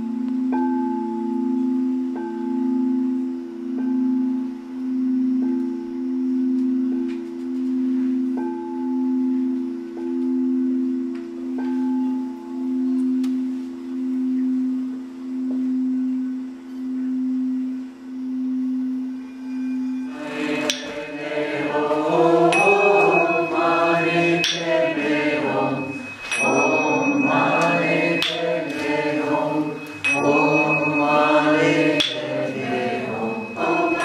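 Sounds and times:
singing bowls humming: 0.0s - 34.0s
singing bowl strikes ringing: 15.3s - 34.0s.

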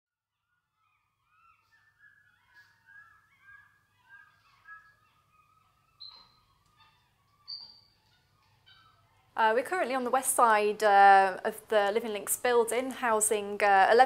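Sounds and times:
monkeys chirping: 0.8s - 9.4s
high monkey whistle: 1.3s - 6.5s.

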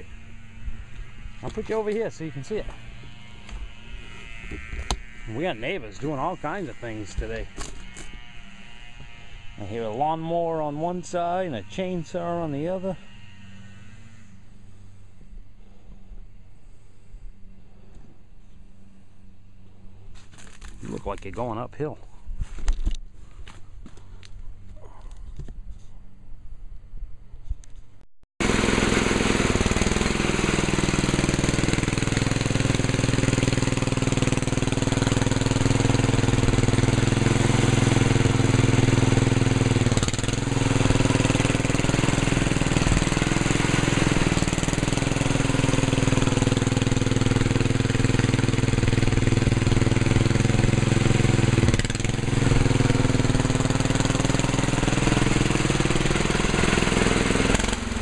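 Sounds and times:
garden tractor engine running: 0.0s - 18.2s, 18.9s - 24.4s, 28.4s - 58.0s.

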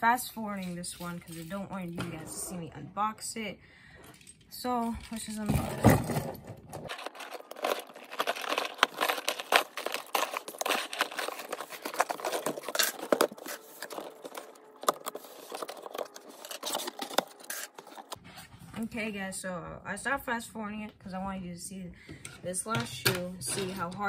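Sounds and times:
key tearing packing tape: 6.9s - 18.2s
cardboard box being handled: 6.9s - 18.5s.

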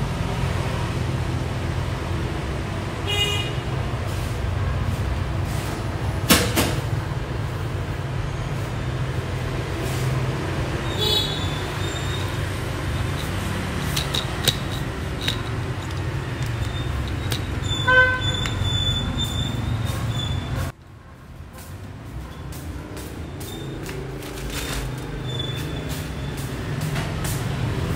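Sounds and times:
kitchen and street rumble: 0.0s - 27.9s
high pitched squeak: 10.8s - 13.4s, 16.1s - 20.7s, 25.2s - 26.5s
sharp knocks and clinks: 11.7s - 19.8s.

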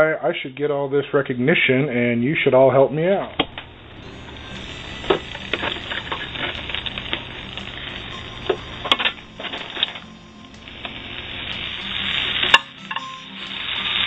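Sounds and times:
omelet sizzling in a frying pan: 3.5s - 14.0s.

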